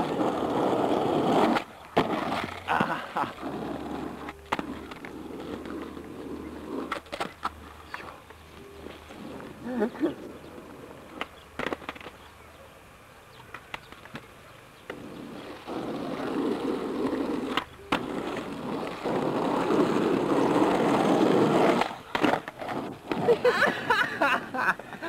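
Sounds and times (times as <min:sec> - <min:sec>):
skateboard wheels rolling on asphalt: 0:00.0 - 0:25.0
sharp skateboard clacks: 0:11.0 - 0:12.2, 0:13.4 - 0:15.0.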